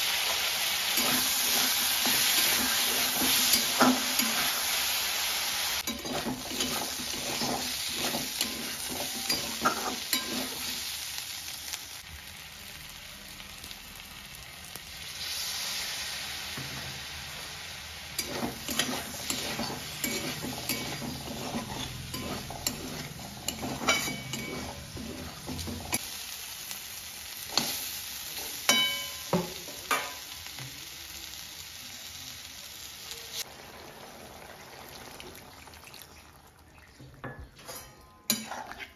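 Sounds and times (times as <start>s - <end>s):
food sizzling in a wok: 0.0s - 36.8s
spatula clinking and scraping pan: 0.2s - 5.0s, 5.8s - 11.0s, 18.2s - 26.0s, 28.4s - 30.2s, 37.2s - 38.9s.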